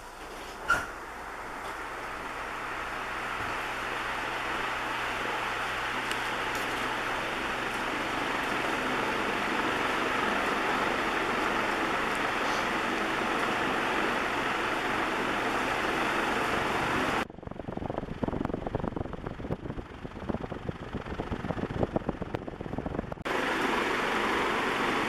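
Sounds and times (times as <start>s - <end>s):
ceiling fan whirring: 0.0s - 25.0s
wind buffeting microphone: 16.6s - 23.3s.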